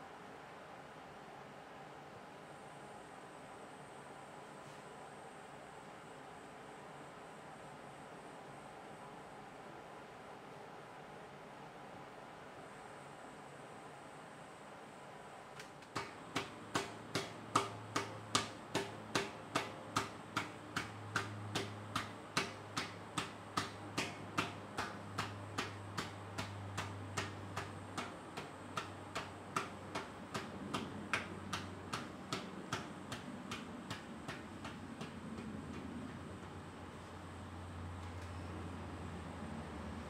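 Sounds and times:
wooden paddle knocking clay: 15.8s - 36.6s.

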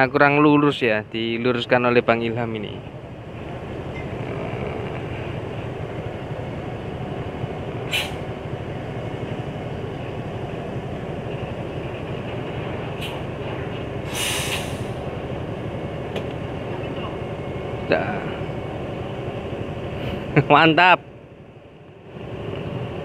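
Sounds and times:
bus diesel engine running: 0.0s - 23.0s
air brake hisses: 7.9s - 8.2s, 14.0s - 15.0s.

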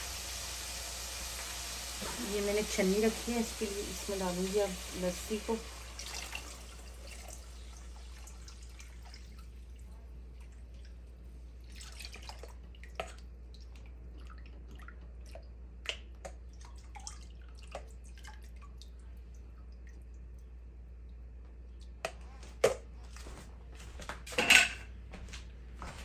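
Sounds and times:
liquid dripping and trickling: 6.0s - 22.2s.

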